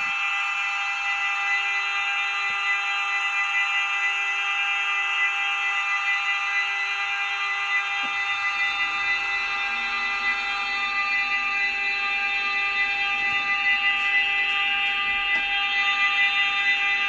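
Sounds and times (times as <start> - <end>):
electric buzzing hum: 8.0 - 17.0.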